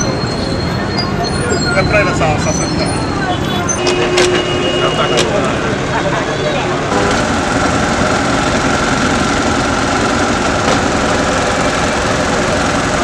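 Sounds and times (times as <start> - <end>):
engine idling: 6.9 - 13.0.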